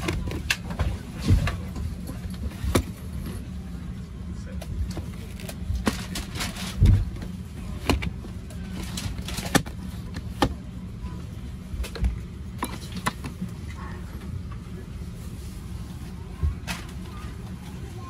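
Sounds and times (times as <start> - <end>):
airplane cabin hum: 0.0 - 18.0.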